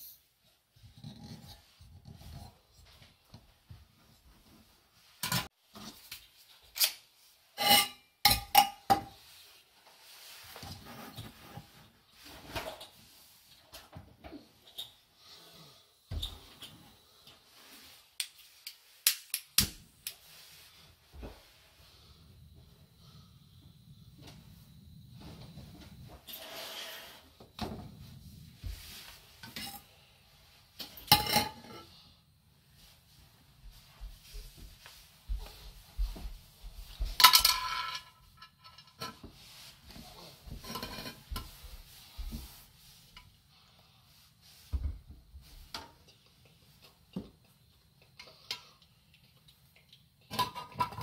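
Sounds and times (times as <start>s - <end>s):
metal pot clattering on stove: 50.3s - 51.0s.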